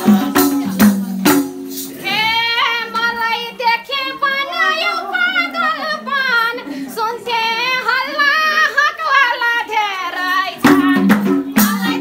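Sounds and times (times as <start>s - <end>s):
light musical accompaniment: 0.0s - 2.1s, 10.6s - 12.0s
woman singing in high voice: 0.0s - 12.0s.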